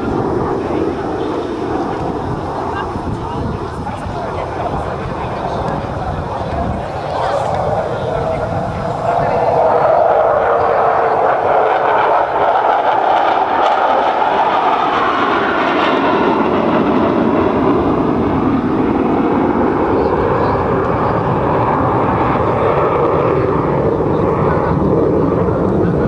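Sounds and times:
jet aircraft in flight: 0.0 - 26.0.

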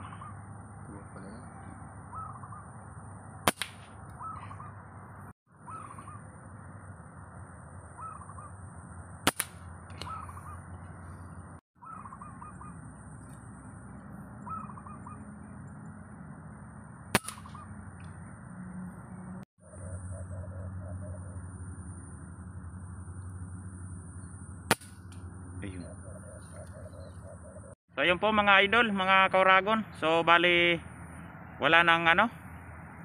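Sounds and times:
bird calling: 0.0 - 3.2, 3.9 - 9.0, 9.7 - 15.9, 17.1 - 18.4, 19.6 - 22.1, 25.1 - 27.8
rifle shots: 3.4 - 3.9, 9.2 - 9.6, 17.1 - 17.6.

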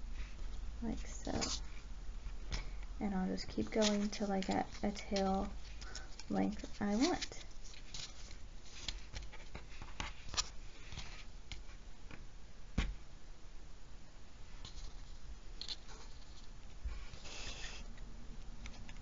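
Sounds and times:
cord rustling and scraping: 0.1 - 2.7, 3.4 - 11.8, 14.6 - 19.0.

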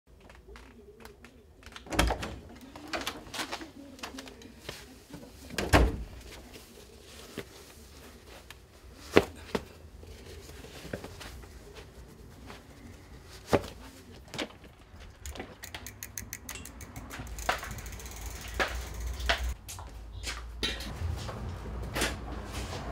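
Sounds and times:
footsteps: 6.2 - 22.9.

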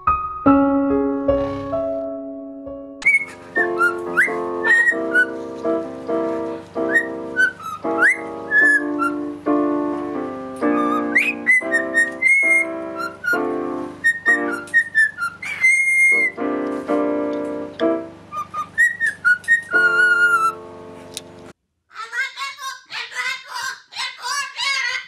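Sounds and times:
keyboard chords: 0.0 - 15.1, 16.1 - 18.8, 19.4 - 21.6
cockatiel whistling a tune: 3.0 - 5.4, 6.8 - 9.3, 10.6 - 16.4, 18.3 - 20.6.

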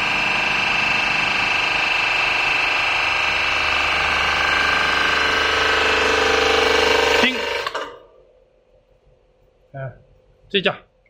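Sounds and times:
hydraulic pump running: 0.0 - 8.3.

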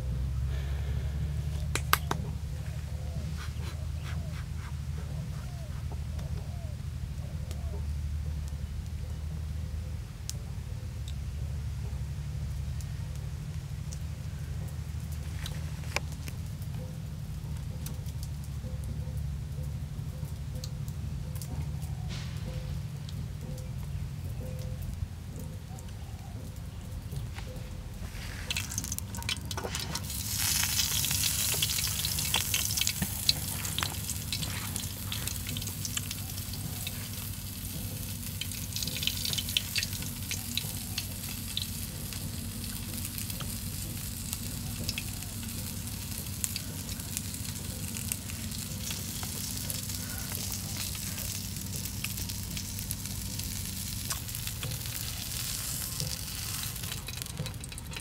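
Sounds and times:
fish sizzling and crackling: 12.8 - 18.5, 27.0 - 58.0.

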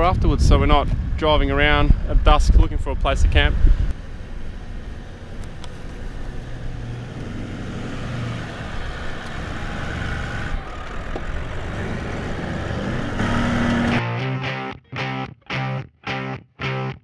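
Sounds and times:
car engine low rumble: 1.9 - 14.0.

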